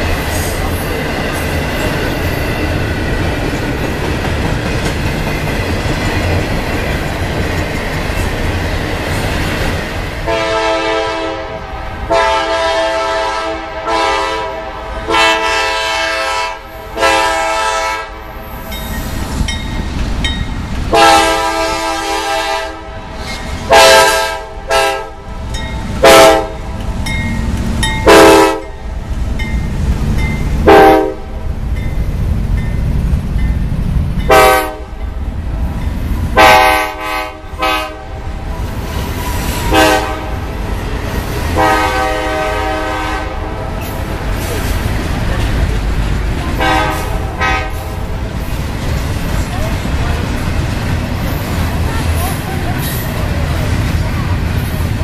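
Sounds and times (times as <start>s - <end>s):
freight train wheels clattering: 0.0s - 10.7s, 23.0s - 55.0s
locomotive air horn blasts: 10.2s - 18.3s, 20.9s - 23.1s, 23.7s - 25.3s, 26.0s - 26.7s, 28.0s - 28.7s, 30.6s - 31.4s, 34.3s - 35.0s, 36.4s - 38.2s, 39.6s - 40.5s, 41.6s - 43.8s, 46.6s - 48.0s.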